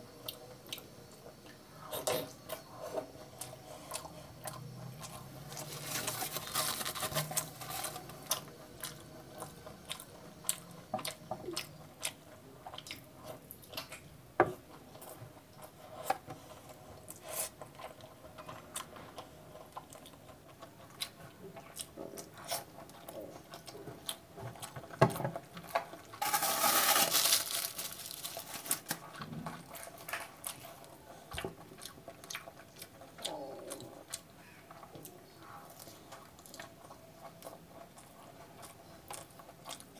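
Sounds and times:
rustling crackle: 0:05.5 - 0:08.4, 0:26.0 - 0:30.6
chewing with wet mouth clicks: 0:08.4 - 0:14.1, 0:31.3 - 0:35.2, 0:35.8 - 0:39.9.

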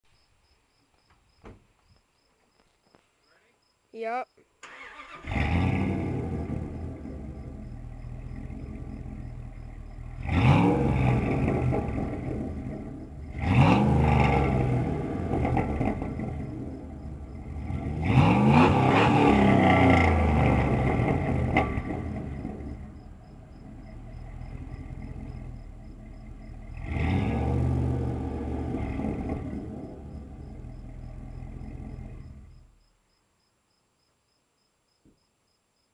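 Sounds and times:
truck engine idling and revving: 0:04.7 - 0:32.8.

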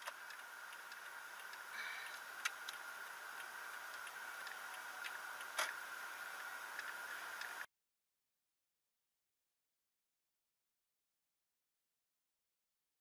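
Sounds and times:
sharp irregular clicks: 0:00.0 - 0:05.8
faint high-pitched whine: 0:00.0 - 0:07.7.

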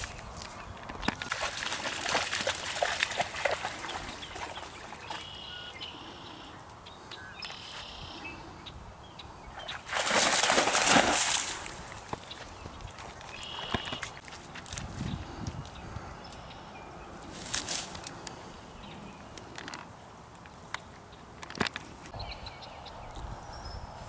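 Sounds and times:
bird calling: 0:03.7 - 0:09.9, 0:12.2 - 0:14.2
water sloshing: 0:09.7 - 0:14.6
dry reeds rustling: 0:09.9 - 0:16.4, 0:17.2 - 0:22.1.

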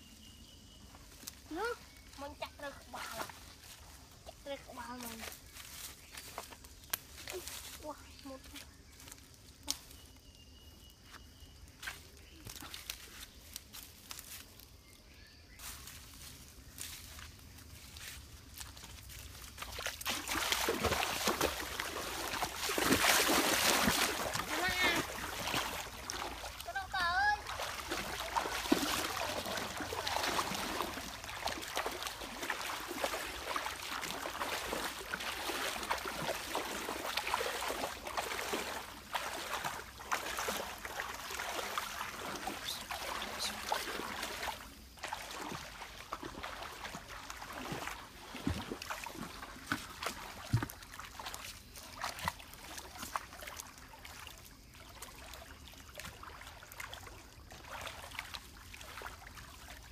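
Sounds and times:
stream trickling: 0:00.0 - 0:59.9
water splashing from wading: 0:19.1 - 0:59.9.

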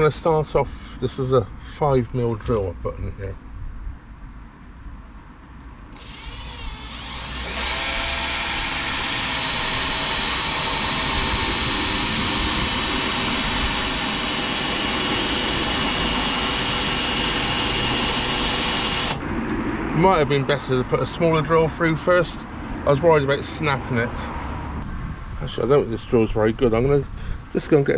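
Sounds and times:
electric drill boring into steel: 0:06.0 - 0:19.2.

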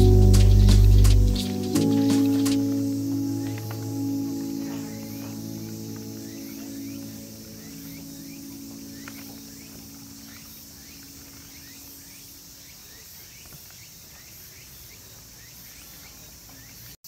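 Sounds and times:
low steady hum: 0:00.0 - 0:11.5
crickets and cicadas chirping: 0:00.0 - 0:17.0.

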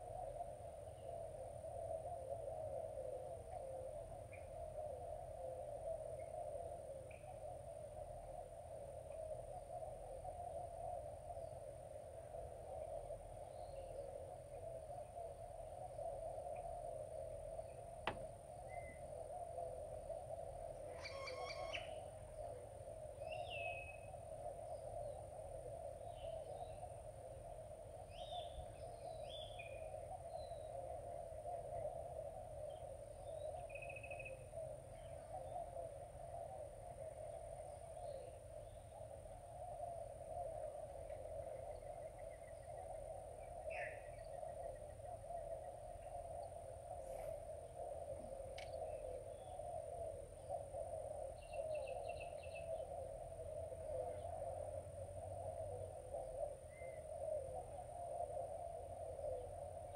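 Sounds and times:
steady low hum: 0:34.3 - 0:59.9.

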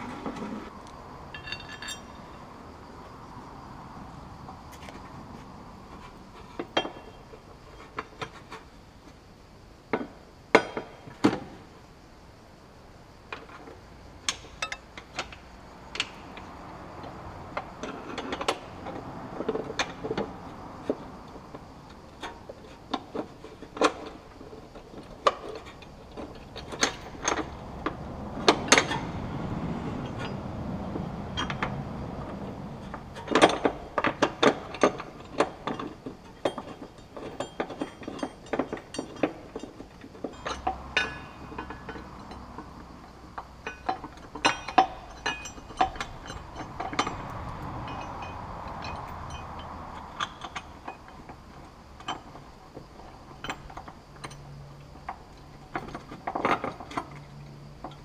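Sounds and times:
metal parts clinking on steel: 0:01.3 - 0:02.2, 0:43.6 - 0:47.3.

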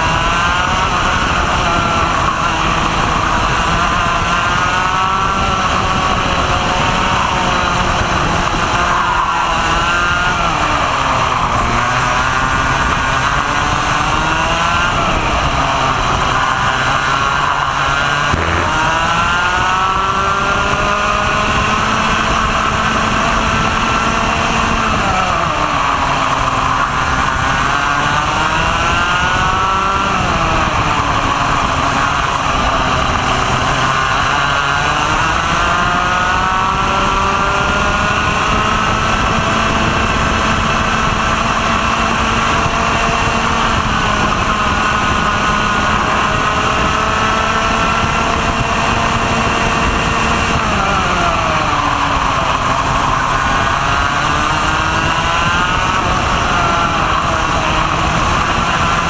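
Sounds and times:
kart engine revving: 0:00.0 - 0:59.0
wind rush: 0:00.0 - 0:59.0.

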